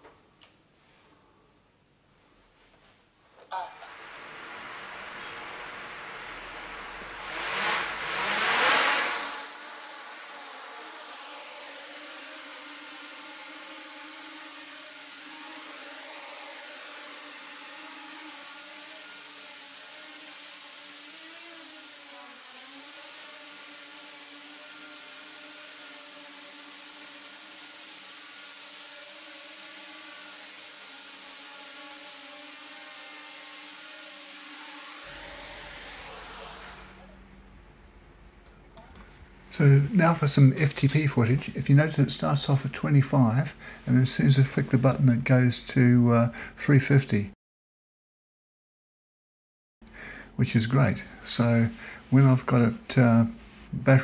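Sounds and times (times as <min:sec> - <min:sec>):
drone propellers whirring: 0:03.5 - 0:13.8, 0:34.6 - 0:38.0.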